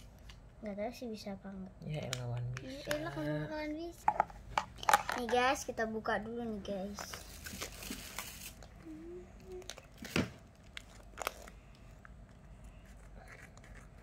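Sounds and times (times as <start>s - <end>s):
plastic crinkling: 7.0s - 8.8s, 9.5s - 14.0s.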